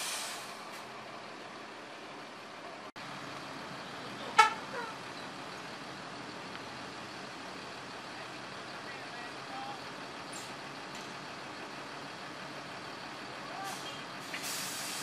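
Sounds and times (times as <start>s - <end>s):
buses idling: 0.0s - 15.0s
bus horn toot: 4.2s - 5.0s.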